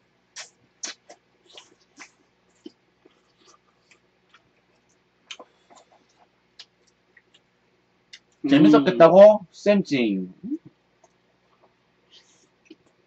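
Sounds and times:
chewing mouth sounds: 0.4 - 7.5.

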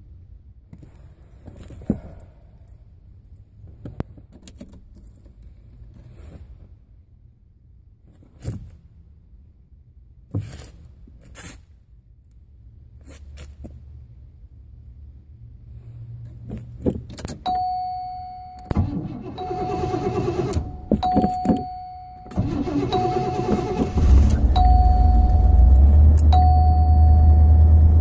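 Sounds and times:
low steady hum: 17.5 - 28.0.

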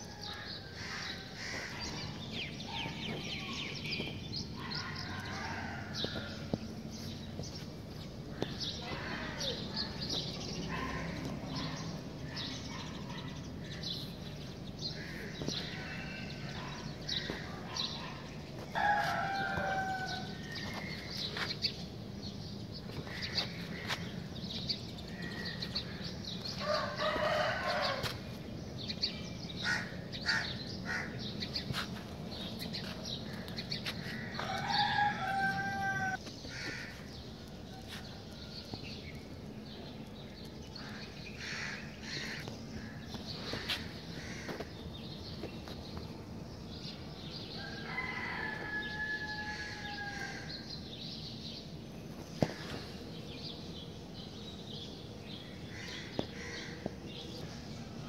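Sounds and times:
small birds chirping: 0.0 - 58.0
rooster crowing: 18.8 - 20.6, 26.6 - 28.1, 34.2 - 36.2, 47.6 - 50.6.

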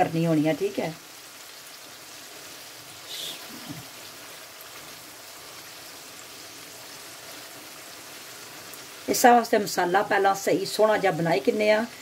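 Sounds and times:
livers sizzling in a frying pan: 0.0 - 12.0.

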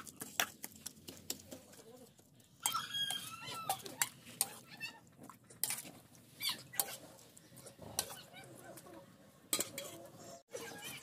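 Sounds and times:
metal ladle scraping pot: 5.4 - 8.6, 9.5 - 10.4.

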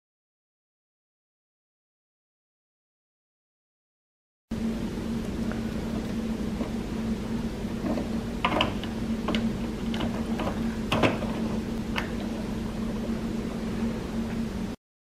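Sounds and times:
steady low hum: 4.5 - 14.8.

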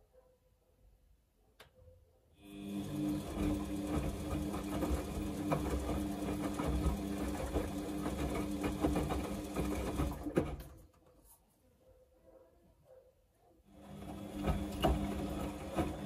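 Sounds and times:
washing machine motor hum: 2.4 - 10.8, 13.7 - 16.0
wet laundry tumbling: 3.1 - 10.8, 13.9 - 16.0.

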